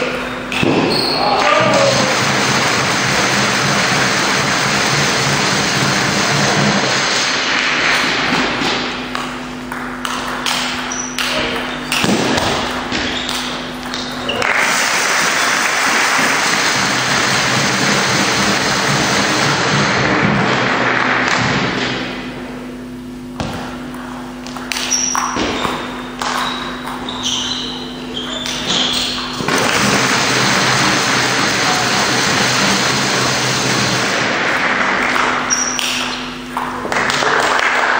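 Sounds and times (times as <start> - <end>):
shoes squeaking on floor: 0.1 - 1.8, 10.8 - 14.5, 24.6 - 29.4, 35.5 - 36.4
table tennis ball knocking: 9.2 - 14.1
spectators applauding: 14.3 - 19.6.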